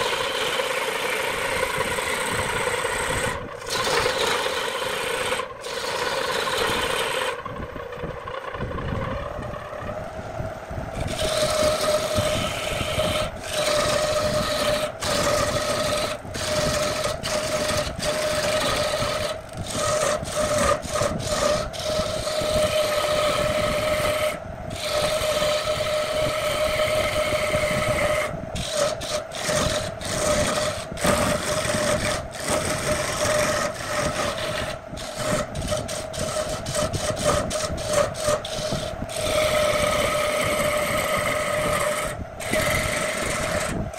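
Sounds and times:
gouge scraping spinning wood: 0.0 - 10.0, 10.9 - 43.9
lathe motor hum: 0.0 - 10.0, 10.9 - 43.9.

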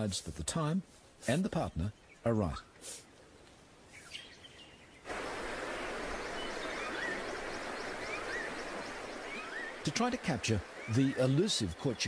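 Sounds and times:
light bird chirps: 1.2 - 12.0
steady rushing hiss: 2.8 - 3.2, 5.0 - 12.0.

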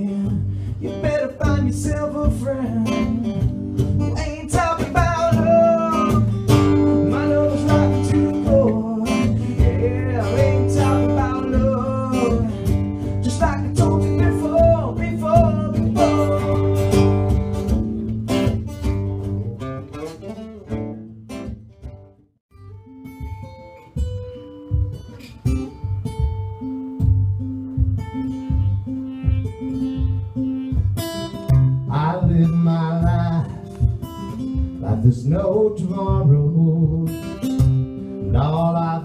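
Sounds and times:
man singing: 0.0 - 17.4, 31.6 - 37.6, 38.2 - 39.0
strummed acoustic guitar: 0.0 - 39.0.

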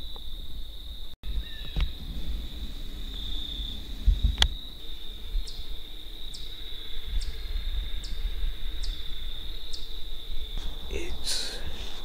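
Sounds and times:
insects trilling: 0.0 - 12.0
low rumble: 1.3 - 8.8, 10.5 - 12.0.

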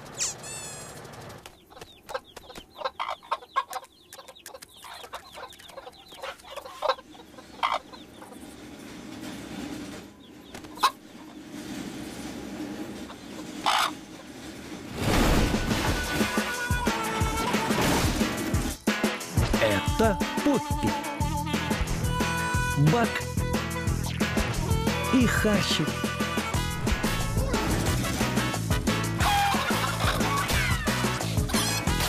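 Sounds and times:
cartoon hens clucking: 0.1 - 1.0, 1.7 - 8.0, 29.2 - 32.0.

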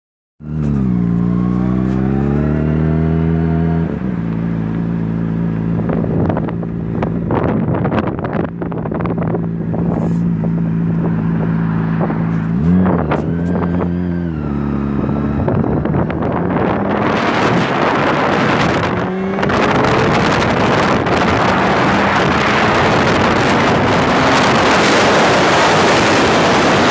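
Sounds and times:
motorcycle engine revving: 0.4 - 26.9
wind buffeting microphone: 5.8 - 26.9.

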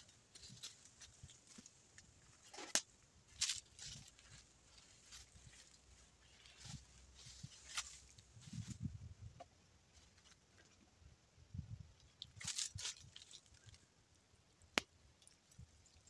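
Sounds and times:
footsteps crunching on dry leaves: 0.3 - 2.7, 3.3 - 8.8, 12.4 - 13.5.

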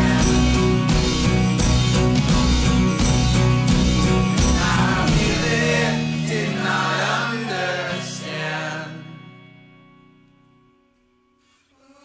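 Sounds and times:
song with singing and beat: 0.0 - 1.5, 4.1 - 9.2.

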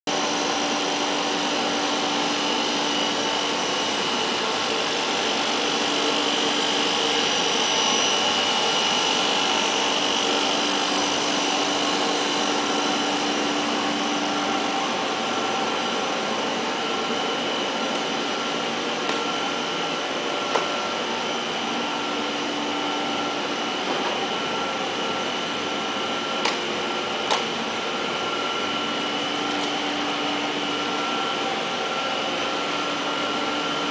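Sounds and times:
machine hum and hiss: 0.1 - 33.9.

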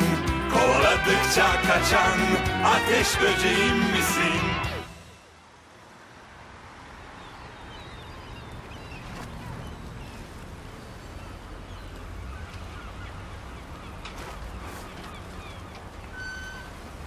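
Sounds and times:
low wash of background noise: 4.9 - 17.0
bird calls: 7.2 - 16.8.

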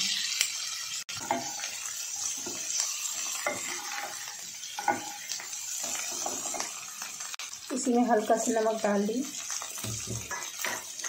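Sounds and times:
potatoes sizzling in oil: 0.0 - 11.0
spatula scraping pan: 1.1 - 7.2, 9.7 - 11.0.

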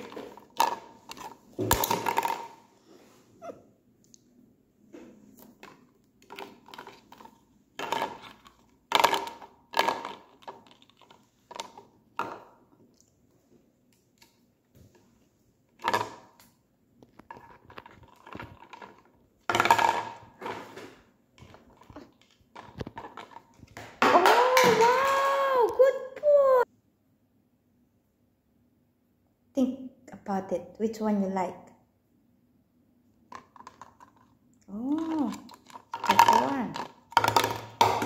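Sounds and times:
plastic toys clattering on table: 0.0 - 2.7, 5.4 - 12.6, 15.8 - 16.4, 17.1 - 25.2, 33.3 - 38.0.

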